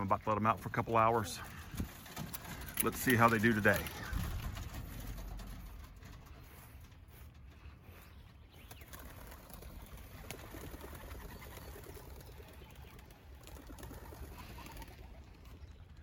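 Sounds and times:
wings flapping: 0.7s - 16.0s
pigeons cooing: 3.5s - 5.9s, 8.8s - 15.8s.

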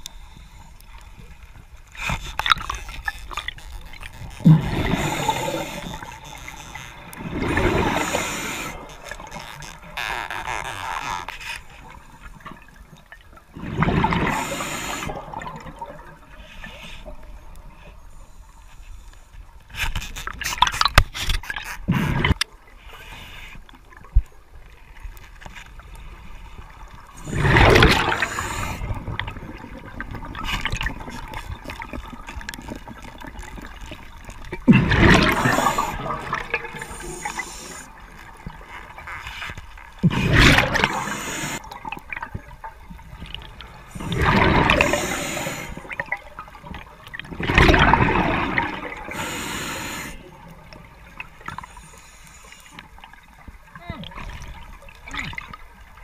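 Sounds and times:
underwater air bubbling: 0.0s - 10.1s, 11.7s - 18.5s, 25.8s - 56.0s
diver breathing: 4.6s - 6.2s, 7.5s - 9.0s, 14.2s - 15.2s, 26.2s - 29.2s, 35.2s - 38.0s, 40.6s - 41.7s, 43.9s - 46.0s, 49.0s - 50.4s.

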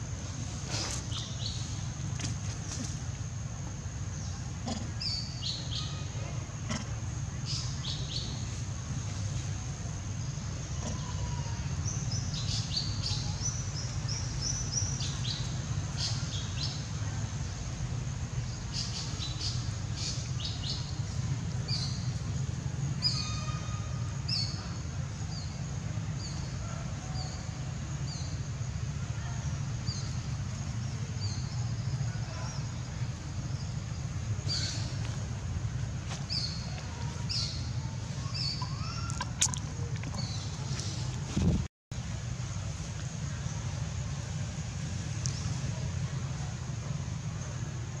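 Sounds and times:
small birds chirping: 0.8s - 9.3s, 29.2s - 35.3s, 36.0s - 41.6s
steady low rumble: 27.4s - 48.0s.

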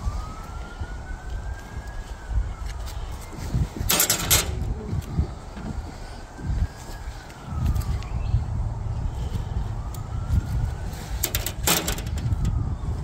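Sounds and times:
distant siren wailing: 0.0s - 13.0s
steady low rumble: 0.0s - 13.0s
metal skewers clinking: 3.9s - 4.6s.

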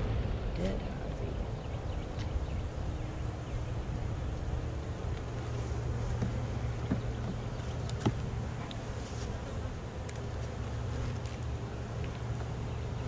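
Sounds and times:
honeybees humming: 0.0s - 13.0s
light wooden knocks: 6.1s - 8.8s.

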